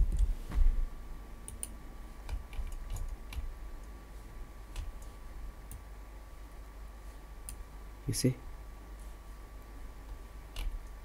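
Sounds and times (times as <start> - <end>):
computer keyboard and mouse clicks: 1.5 - 3.5, 10.5 - 11.0.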